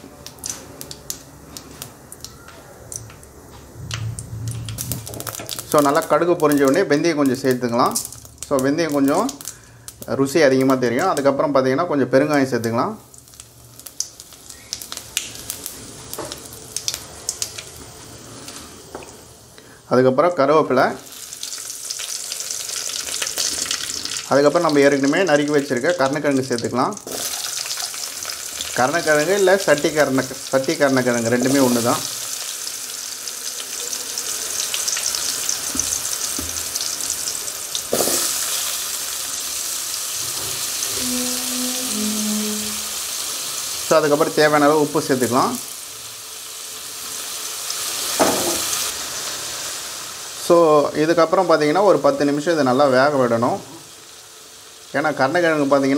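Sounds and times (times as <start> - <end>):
hot oil sizzling: 0.0 - 55.9
mustard seeds crackling and popping: 3.9 - 11.3, 13.1 - 17.7
knock in pan: 48.2 - 48.7.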